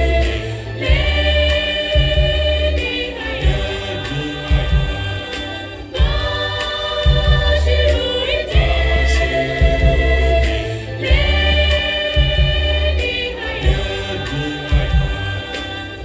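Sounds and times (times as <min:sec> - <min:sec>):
choir singing gospel: 0:00.0 - 0:16.0.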